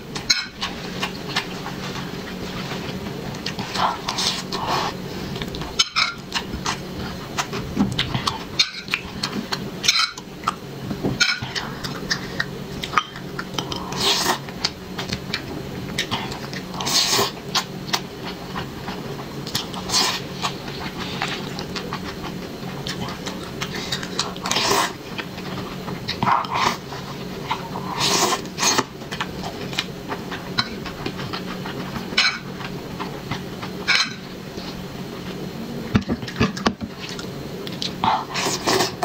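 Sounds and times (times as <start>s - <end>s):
steady low hum: 0.0s - 39.0s
wet chewing and slurping: 11.2s - 34.8s.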